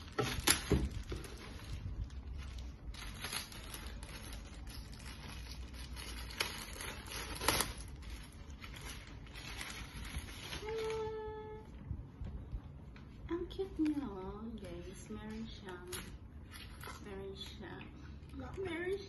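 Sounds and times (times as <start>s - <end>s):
plastic bag crinkling: 0.0s - 11.5s.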